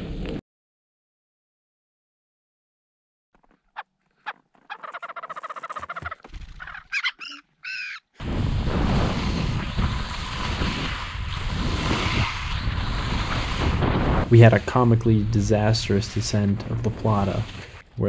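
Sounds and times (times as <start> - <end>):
ptarmigan clucking calls: 3.8 - 8.1
wind rushing on microphone: 8.2 - 17.6
skis sliding on snow: 8.3 - 17.8.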